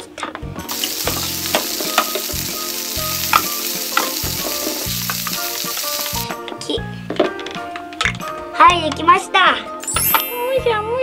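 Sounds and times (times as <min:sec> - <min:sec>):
toy stove frying sizzle: 0:00.7 - 0:06.4.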